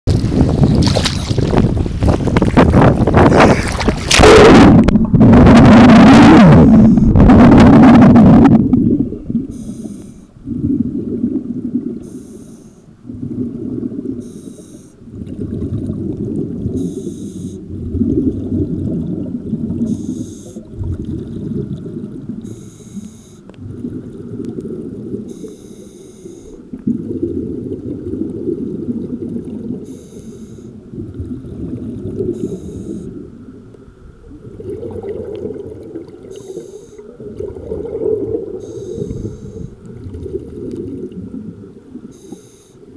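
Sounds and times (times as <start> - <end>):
exhaled bubbles rumbling: 0.1 - 12.2, 13.0 - 14.4, 15.0 - 22.9, 23.5 - 25.6, 26.5 - 30.0, 30.7 - 42.9
regulator hissing inhale: 9.5 - 10.3, 12.0 - 12.9, 14.2 - 15.0, 16.8 - 17.6, 19.9 - 20.6, 22.4 - 23.5, 25.3 - 26.6, 29.9 - 30.8, 32.3 - 33.1, 36.3 - 37.2, 38.6 - 39.8, 42.1 - 42.9.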